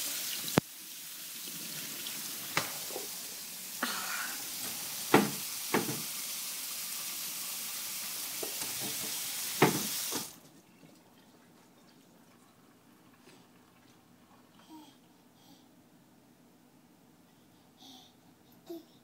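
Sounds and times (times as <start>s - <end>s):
steady hiss: 0.0s - 10.4s.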